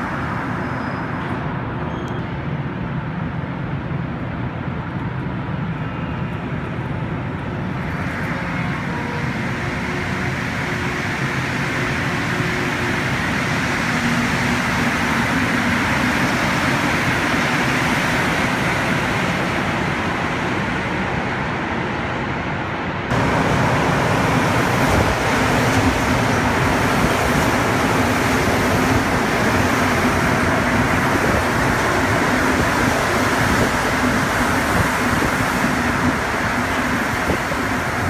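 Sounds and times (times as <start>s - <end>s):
metro train hum and rumble: 0.0s - 38.0s.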